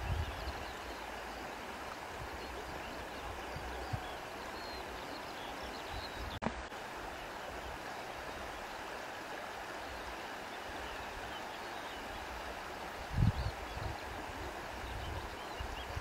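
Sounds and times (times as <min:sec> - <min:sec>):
wind gust on microphone: 0:00.0 - 0:00.7, 0:13.0 - 0:16.0
river water rushing: 0:00.0 - 0:16.0.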